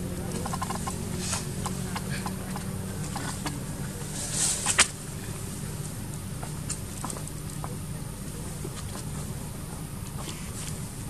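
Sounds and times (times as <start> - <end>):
steady low hum: 0.0 - 11.0
clicks and rustles on dry leaves: 0.2 - 9.3.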